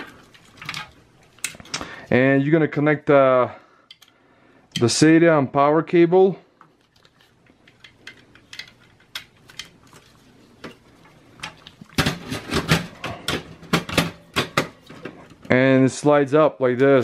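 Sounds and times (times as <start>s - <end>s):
plastic connectors clicking and rattling: 6.8s - 9.8s.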